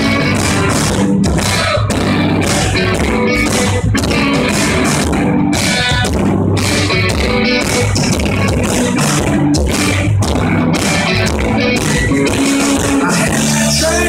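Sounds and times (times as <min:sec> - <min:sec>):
bass guitar: 0:00.0 - 0:14.0
drums with cymbal hits: 0:00.0 - 0:14.0
electric guitars: 0:00.0 - 0:14.0.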